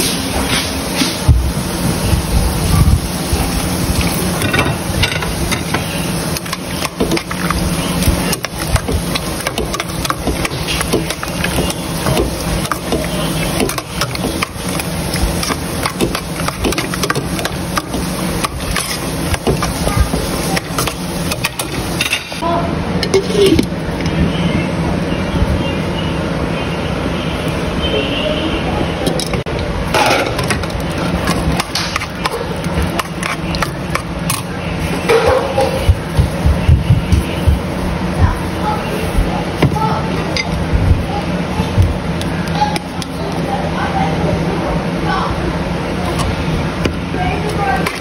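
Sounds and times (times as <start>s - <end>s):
metal spoon stirring in a pot: 3.9s - 22.4s, 29.1s - 35.0s, 46.0s - 48.0s.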